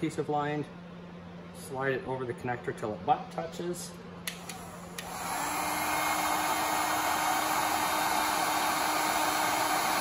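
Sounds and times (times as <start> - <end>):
heat gun blowing: 4.3 - 10.0.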